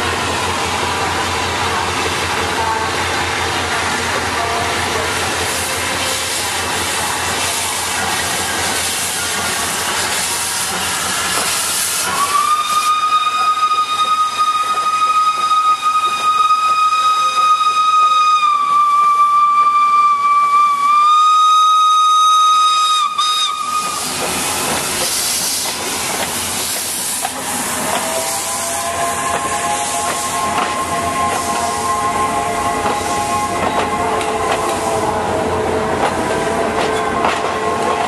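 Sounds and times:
train rolling: 0:00.0 - 0:38.0
steam hissing: 0:03.8 - 0:18.4, 0:19.0 - 0:36.8
steam whistle long note: 0:11.8 - 0:24.1, 0:27.3 - 0:38.0.

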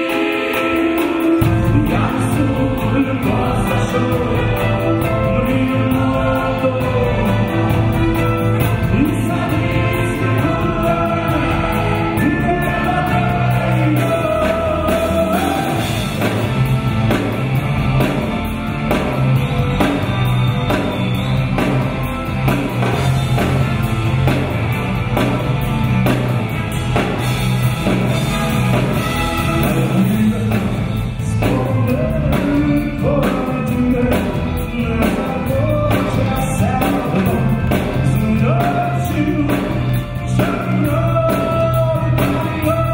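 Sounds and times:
lead and choir singing: 0:00.0 - 0:17.4
live rock band with guitars: 0:00.0 - 0:42.9.

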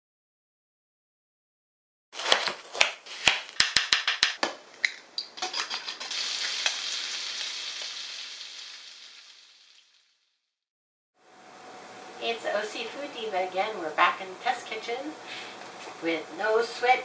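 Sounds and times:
bacon sizzling in a pan: 0:05.4 - 0:10.3.

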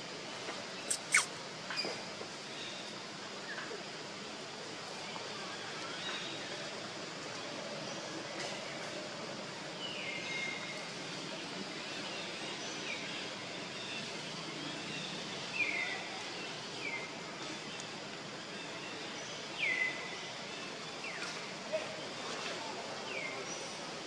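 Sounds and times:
outdoor background hiss: 0:00.0 - 0:24.0
animal's high sliding calls: 0:00.9 - 0:01.3.

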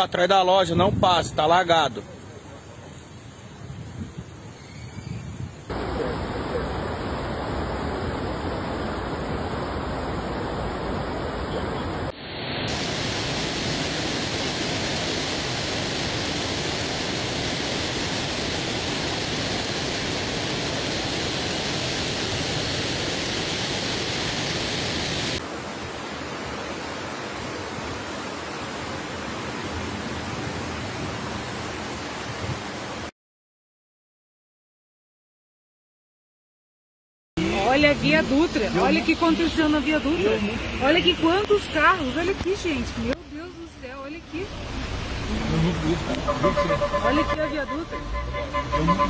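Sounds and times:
floodwater rushing: 0:05.7 - 0:33.1, 0:37.4 - 0:49.0
heavy rain: 0:05.7 - 0:33.1, 0:37.4 - 0:49.0.

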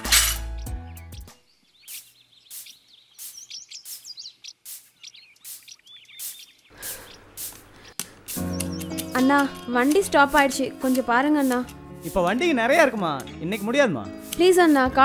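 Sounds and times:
birds chirping: 0:00.4 - 0:15.0
faint outdoor background noise: 0:01.3 - 0:09.5.

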